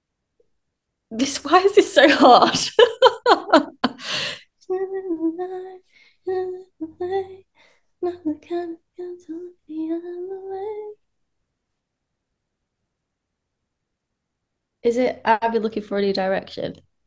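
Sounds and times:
woman singing quietly: 0:04.6 - 0:11.0.

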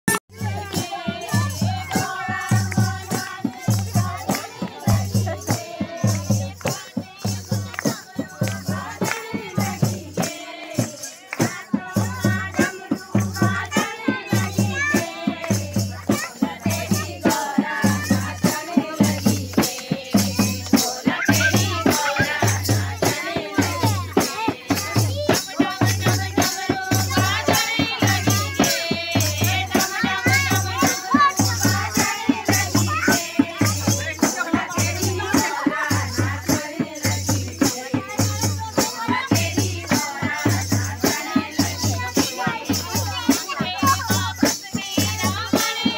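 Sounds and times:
jingling percussion: 0:00.1 - 0:45.9
women singing: 0:00.3 - 0:45.9
drum strokes: 0:00.4 - 0:45.9
hand claps: 0:06.5 - 0:09.6.

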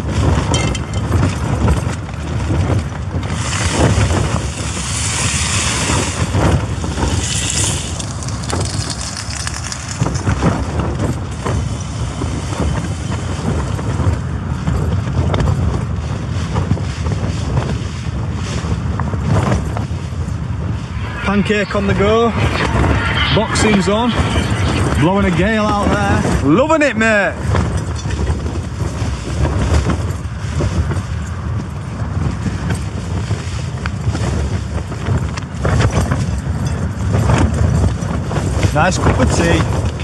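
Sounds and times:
wind buffeting tent and microphone: 0:00.0 - 0:40.0
bright hissing rush: 0:04.4 - 0:10.0, 0:20.1 - 0:26.4.

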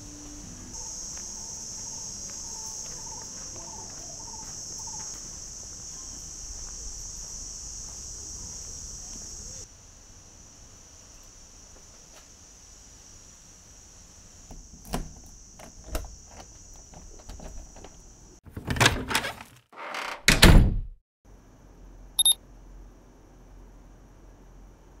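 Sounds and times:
crickets chirping: 0:00.0 - 0:18.4, 0:21.3 - 0:25.0
door thunks: 0:20.0 - 0:21.0.

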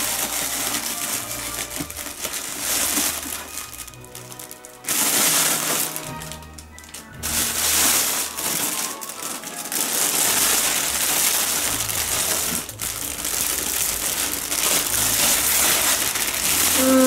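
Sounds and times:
cellophane crinkling: 0:00.0 - 0:17.0.

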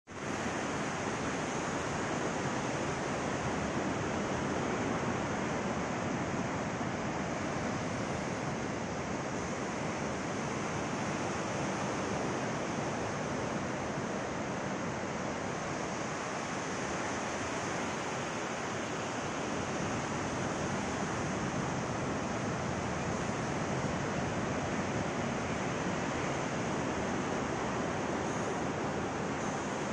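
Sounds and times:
waves breaking on beach: 0:00.1 - 0:29.9.

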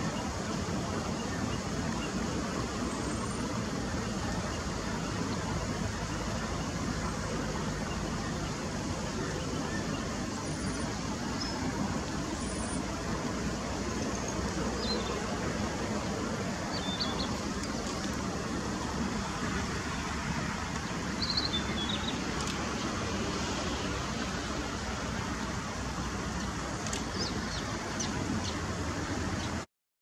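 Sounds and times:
road traffic rumble: 0:00.0 - 0:29.7
faint high bird chirps: 0:21.2 - 0:22.2.

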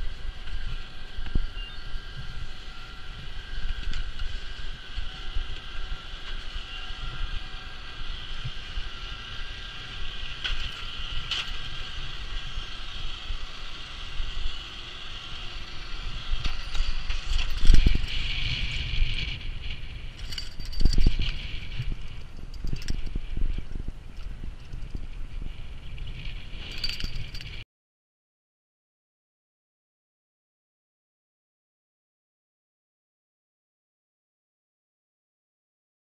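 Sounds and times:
wind rumble on microphone: 0:00.0 - 0:27.6
skis scraping over snow: 0:02.1 - 0:22.5.

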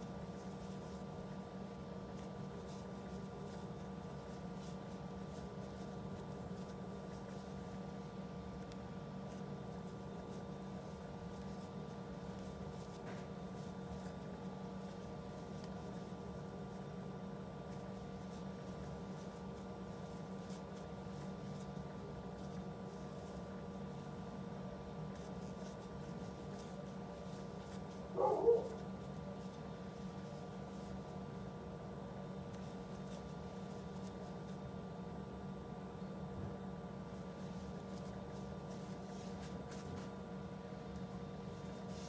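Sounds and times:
crochet hook scratching yarn: 0:00.0 - 0:17.0, 0:17.6 - 0:24.4, 0:25.0 - 0:31.2.

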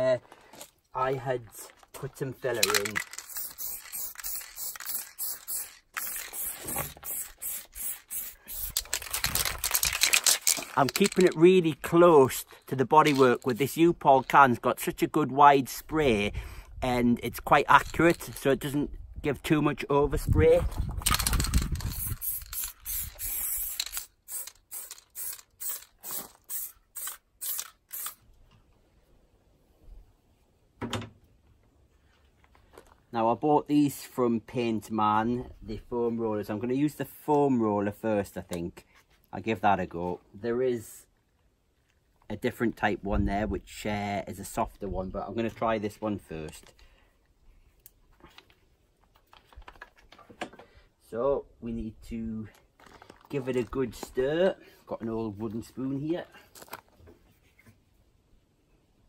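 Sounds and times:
aerosol can spraying: 0:03.2 - 0:08.9, 0:21.9 - 0:28.2.

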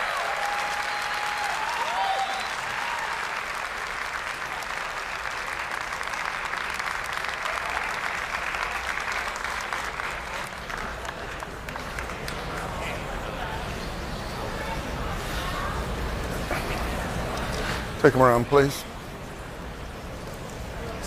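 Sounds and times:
audience applauding: 0:00.0 - 0:13.2
people cheering: 0:00.0 - 0:13.2.

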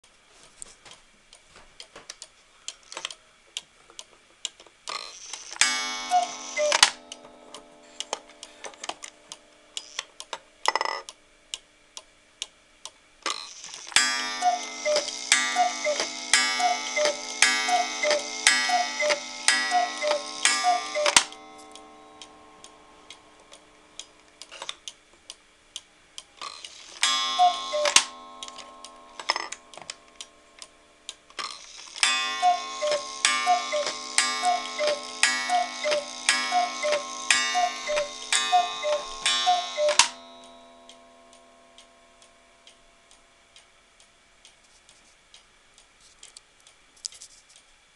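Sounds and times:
cuckoo clock ticking: 0:04.9 - 0:12.6, 0:13.3 - 0:44.6
sustained ringing tone: 0:05.7 - 0:08.6, 0:14.0 - 0:24.0, 0:27.0 - 0:31.0, 0:32.0 - 0:42.6
two-note cuckoo call: 0:05.9 - 0:07.1, 0:14.2 - 0:22.6, 0:27.0 - 0:29.7, 0:32.0 - 0:40.6.

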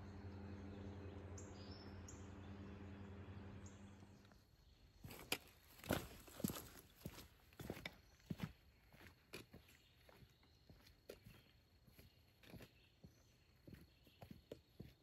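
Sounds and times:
low hum: 0:00.0 - 0:06.3
high bird chirps: 0:00.4 - 0:04.8
footsteps on dirt trail: 0:04.2 - 0:15.0.

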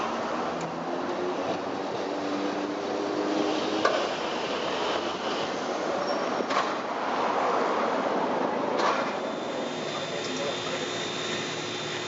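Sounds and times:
faint high wheel squeal: 0:04.4 - 0:06.4.

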